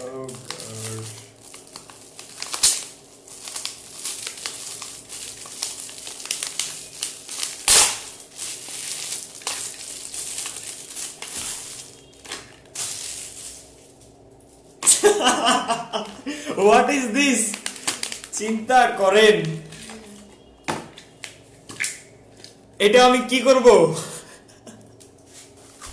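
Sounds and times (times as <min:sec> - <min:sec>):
wrapping paper crinkling: 0:00.0 - 0:15.4, 0:16.0 - 0:20.2.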